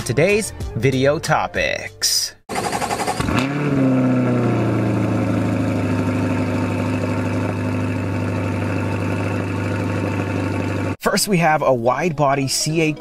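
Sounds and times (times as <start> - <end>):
car engine revving and idling: 2.5 - 11.0.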